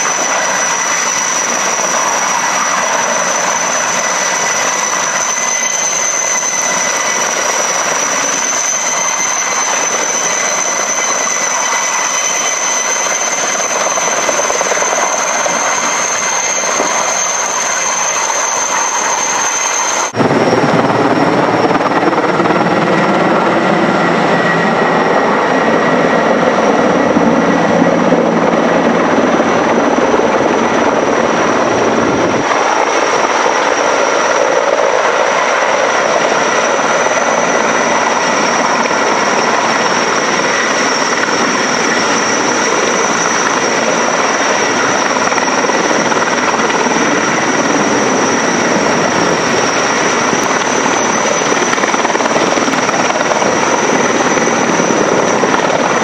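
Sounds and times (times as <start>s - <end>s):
helicopter rotor and turbine noise: 0.0s - 56.0s
high-pitched turbine whine: 0.0s - 56.0s.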